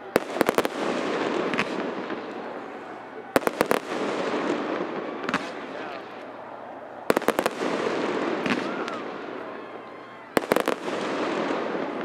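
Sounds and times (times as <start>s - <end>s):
fireworks cracking: 0.0s - 12.0s.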